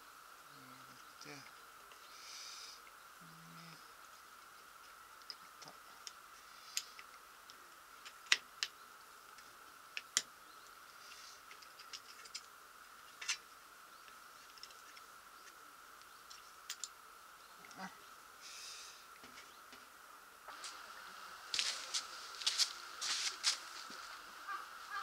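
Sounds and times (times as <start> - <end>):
plastic parts clicking and tapping: 16.3 - 16.9.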